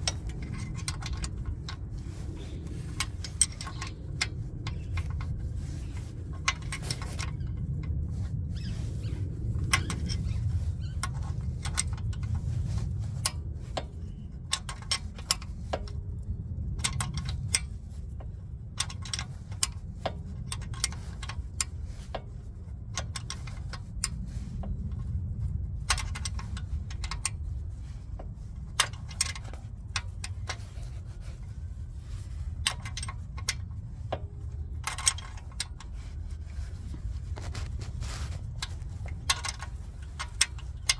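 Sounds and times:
metal tools clinking: 0.0 - 7.8
socket ratchet clicking: 0.0 - 8.0, 8.6 - 40.9.

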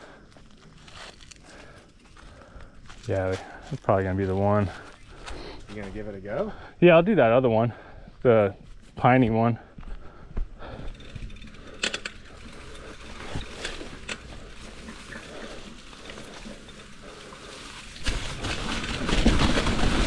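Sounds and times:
bike rolling downhill rushing: 10.1 - 20.0
bike clicks and rattles: 10.6 - 20.0.

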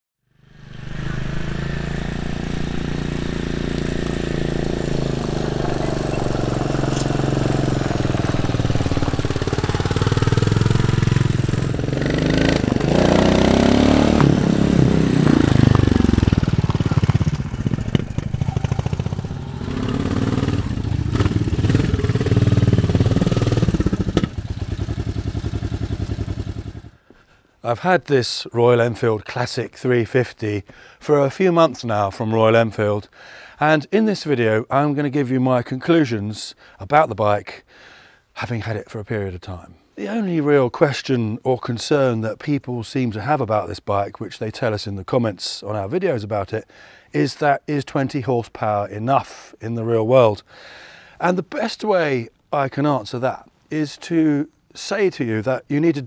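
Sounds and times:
motorcycle engine running: 0.3 - 27.0.

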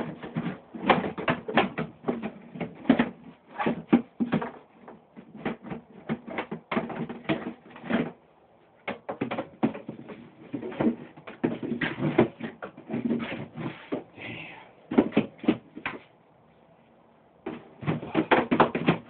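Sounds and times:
stick knocking plastic bin: 8.8 - 14.1, 17.4 - 19.0.

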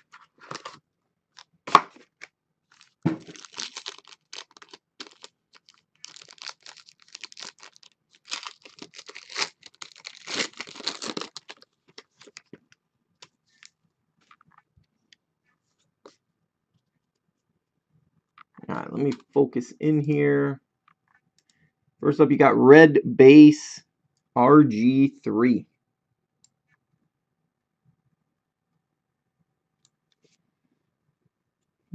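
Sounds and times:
foil pack tearing and crinkling: 2.7 - 12.6.

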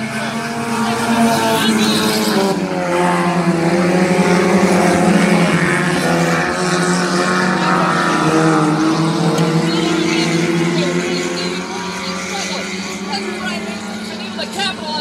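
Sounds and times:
race car engines passing: 0.0 - 15.0.

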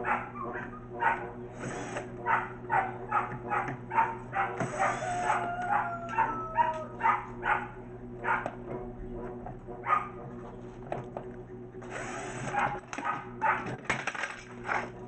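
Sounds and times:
dog barking: 0.0 - 1.4, 2.2 - 8.6, 9.8 - 10.2, 12.5 - 13.8
cordless drill running: 1.5 - 2.2, 4.6 - 5.5, 11.8 - 13.0.

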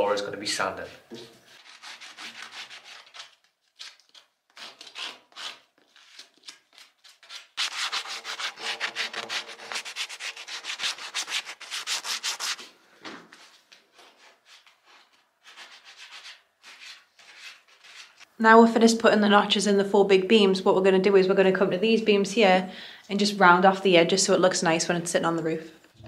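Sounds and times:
hand sanding wooden beam: 1.3 - 3.2, 7.4 - 12.8, 14.0 - 18.3.

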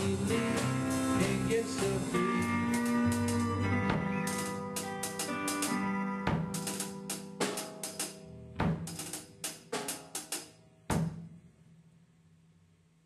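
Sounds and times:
drum kit playing: 0.0 - 11.6
held instrument notes: 0.1 - 7.4.

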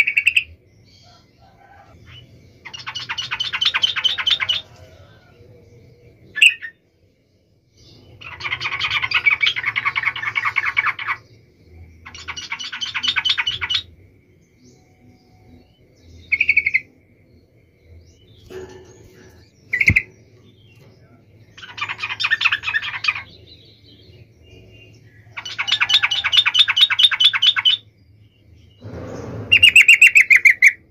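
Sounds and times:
bird calling and chattering: 2.1 - 4.8, 8.2 - 11.3, 12.0 - 13.9, 16.2 - 17.0, 18.4 - 20.8, 21.6 - 23.5, 25.3 - 27.9.

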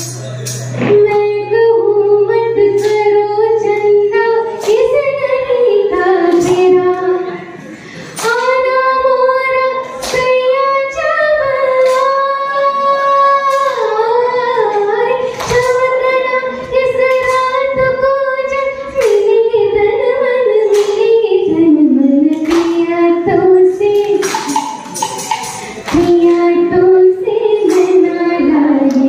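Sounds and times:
hand drum: 24.2 - 26.5.

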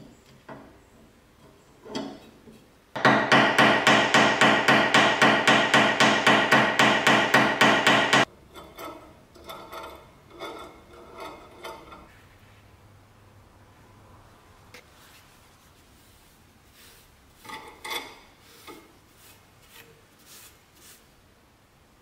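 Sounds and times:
hammer striking metal: 3.0 - 8.3.

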